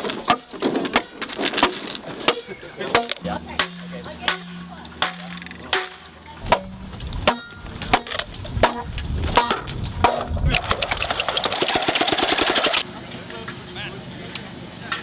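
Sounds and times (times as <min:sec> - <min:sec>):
bamboo being struck: 0:00.0 - 0:12.8
fast rattle of clicks: 0:10.2 - 0:12.8.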